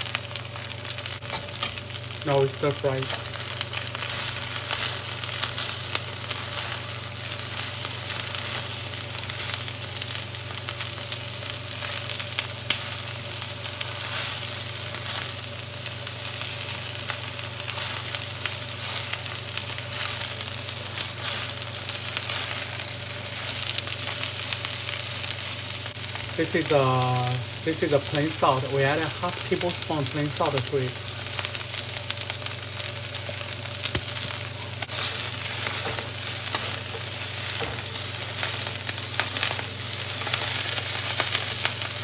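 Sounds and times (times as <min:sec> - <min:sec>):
cabbage sizzling in hot oil: 0:00.0 - 0:42.0
utensils clicking against pan: 0:01.3 - 0:01.8.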